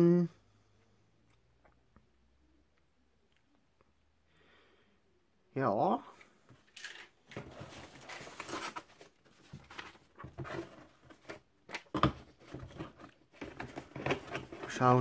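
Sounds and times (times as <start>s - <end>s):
paper and cardboard rustling: 6.8s - 15.0s.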